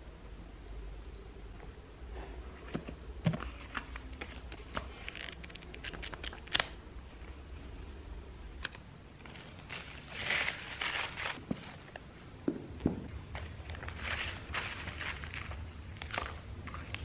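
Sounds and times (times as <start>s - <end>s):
plastic wrap crinkling: 4.0s - 6.8s, 9.1s - 11.9s, 13.3s - 17.0s.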